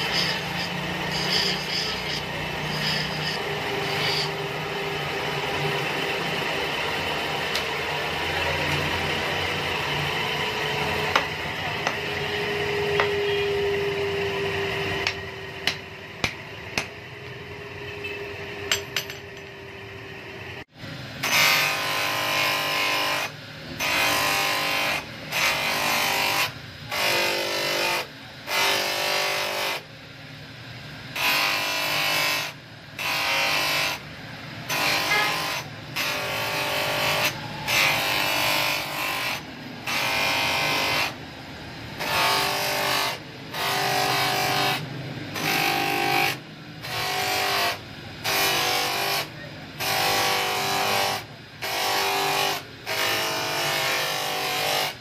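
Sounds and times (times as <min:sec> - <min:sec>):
metal grinding on wheel: 0:00.0 - 0:17.0, 0:31.1 - 0:41.2
polishing wheel humming: 0:00.0 - 0:29.9, 0:31.1 - 0:55.0.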